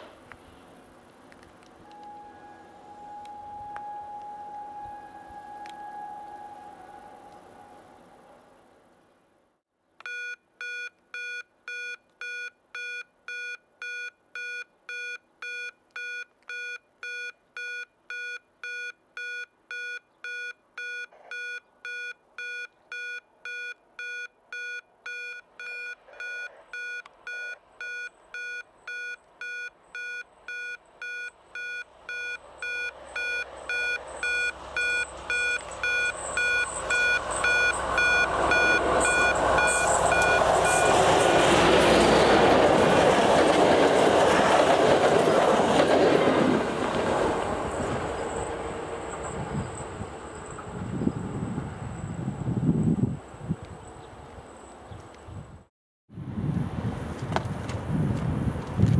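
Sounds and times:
diesel locomotive approaching: 1.8s - 9.0s, 29.8s - 55.2s
level crossing signal beeping: 1.9s - 7.8s, 10.0s - 41.5s.

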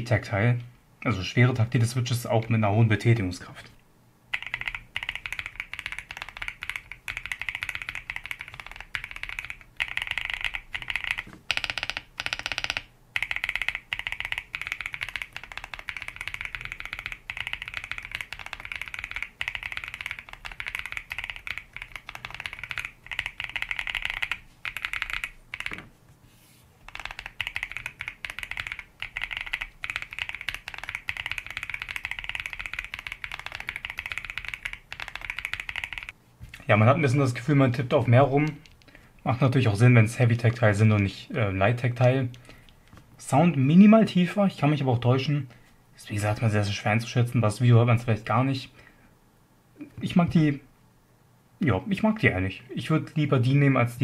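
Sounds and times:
mechanical keyboard typing: 4.3s - 25.9s, 26.8s - 36.2s.

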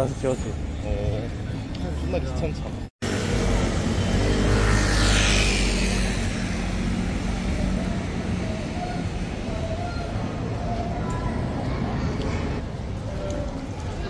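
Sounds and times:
low traffic rumble: 0.0s - 14.0s
vehicle passing: 3.0s - 12.6s.

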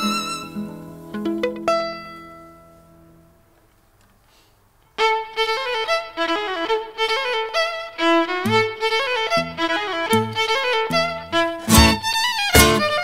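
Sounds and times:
solo violin fast run: 5.0s - 13.0s.

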